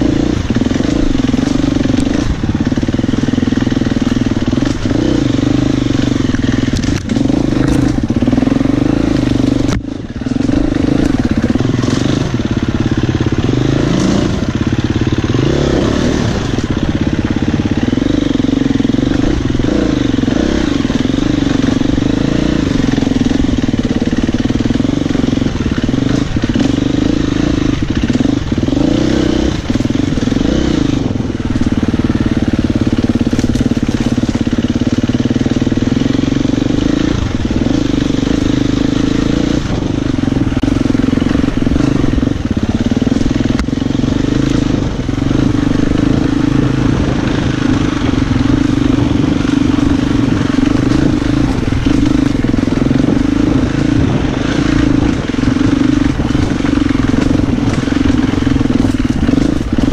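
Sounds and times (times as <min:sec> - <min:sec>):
motorcycle knocking over rocks: 0:00.0 - 0:14.9, 0:19.0 - 0:36.0, 0:47.9 - 0:59.9
motorcycle engine revving: 0:00.0 - 0:59.9.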